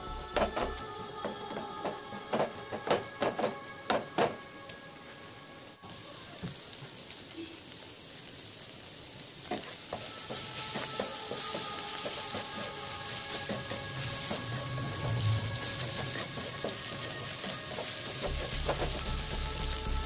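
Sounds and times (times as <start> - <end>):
food sizzling in frying pan: 5.7 - 20.0.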